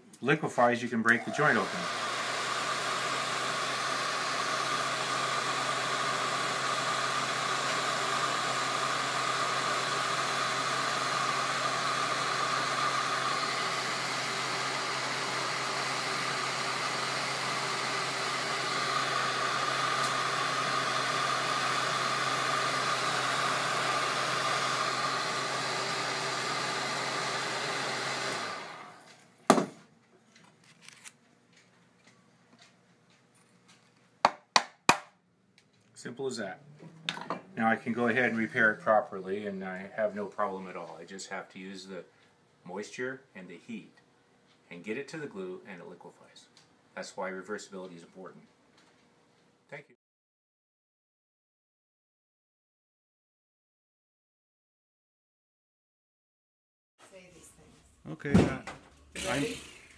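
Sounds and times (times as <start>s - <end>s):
heat gun blowing: 1.1s - 29.1s, 59.1s - 59.9s.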